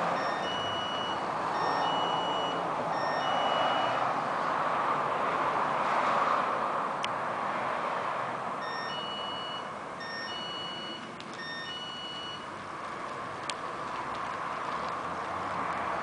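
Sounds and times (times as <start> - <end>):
electronic beeping melody: 0.2 - 4.0, 8.6 - 12.5
outdoor background hiss: 6.6 - 16.0.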